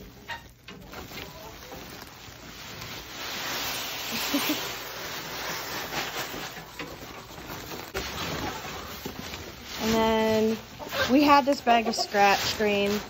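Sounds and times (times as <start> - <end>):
grain pouring into barrel: 0.0 - 9.1.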